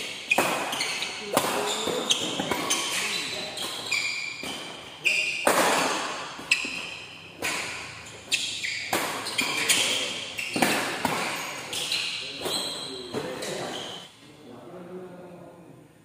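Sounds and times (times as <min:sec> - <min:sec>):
rackets striking shuttlecock: 0:00.0 - 0:13.2
shoes squeaking on court floor: 0:00.0 - 0:14.1.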